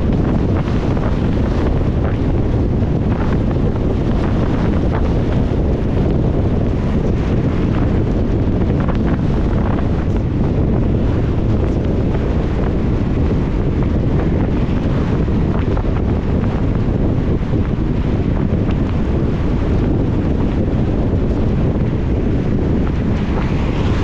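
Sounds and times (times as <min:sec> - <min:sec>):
wind against car: 0:00.0 - 0:24.0
tyres on wet road: 0:21.8 - 0:24.0.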